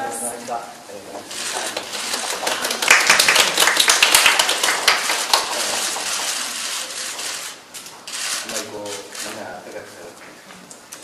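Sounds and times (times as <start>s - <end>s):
group of people clapping: 1.3s - 7.5s.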